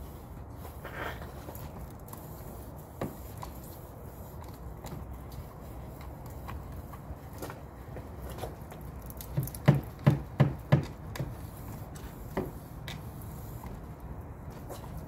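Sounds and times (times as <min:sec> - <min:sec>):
cleaning pole knocking on gutter: 0:09.3 - 0:11.3.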